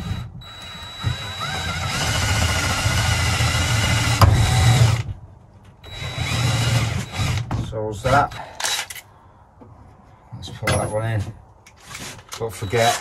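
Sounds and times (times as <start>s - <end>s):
cordless drill driving a screw: 0.0s - 5.0s, 5.9s - 7.5s, 12.5s - 13.0s.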